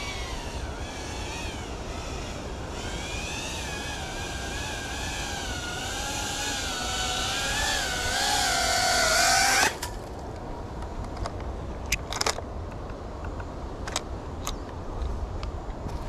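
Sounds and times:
drone motors whining: 0:00.0 - 0:10.0.

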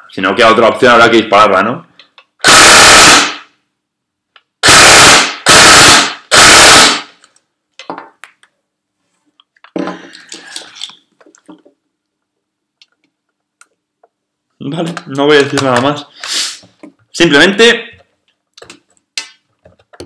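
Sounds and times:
airsoft gun full-auto bursts: 0:02.4 - 0:03.4, 0:04.6 - 0:07.1.

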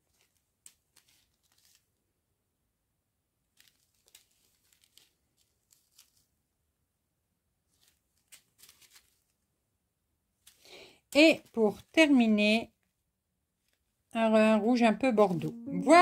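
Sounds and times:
plastic bags rustling: 0:03.6 - 0:06.3, 0:07.7 - 0:09.3.

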